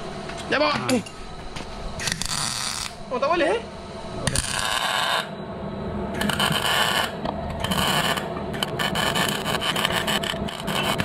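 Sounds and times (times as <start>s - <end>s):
welding arc crackling: 2.0s - 3.0s, 4.3s - 5.3s, 6.2s - 11.0s.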